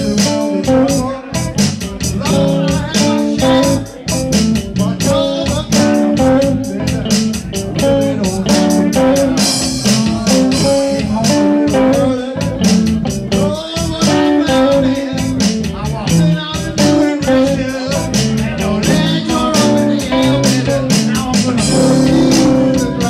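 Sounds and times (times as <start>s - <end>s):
drum kit beat: 0.0s - 23.0s
electric bass: 0.0s - 23.0s
electric guitar: 0.0s - 23.0s.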